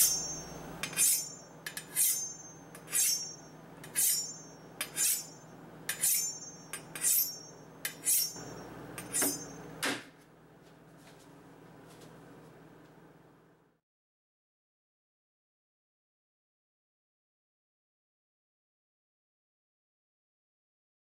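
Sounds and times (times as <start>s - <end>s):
knife scraping on honing steel: 0.0s - 9.7s.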